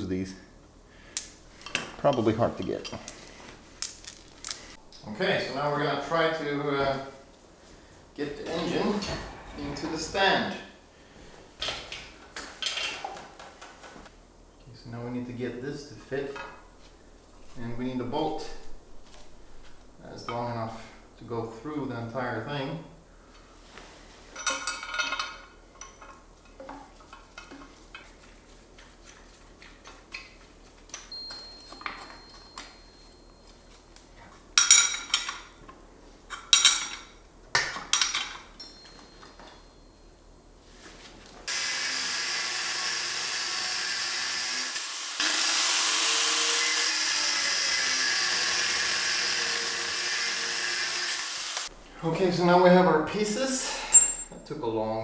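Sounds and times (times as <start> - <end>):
metal parts clinking and clattering: 3.8 - 4.8, 11.6 - 13.2, 24.3 - 28.1, 36.3 - 39.6
power tool cutting bolts: 41.5 - 51.7.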